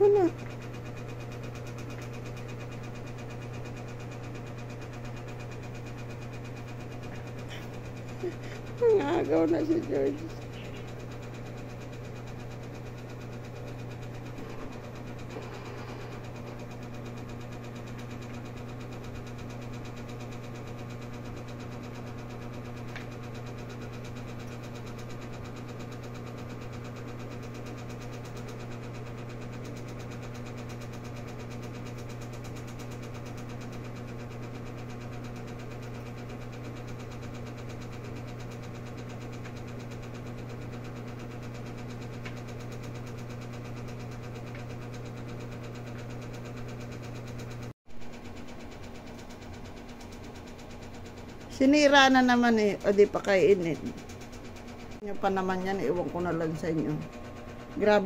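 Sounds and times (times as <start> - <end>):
low machine hum: 0.0 - 58.0.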